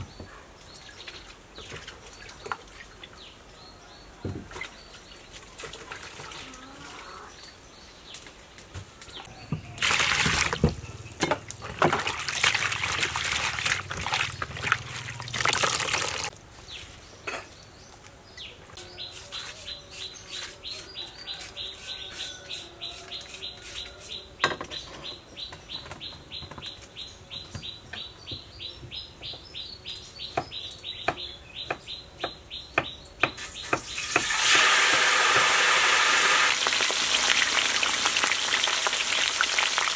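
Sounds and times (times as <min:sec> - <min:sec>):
hands splashing water in basin: 0:09.8 - 0:10.6, 0:11.5 - 0:16.3
hot oil sizzling: 0:33.4 - 0:39.9.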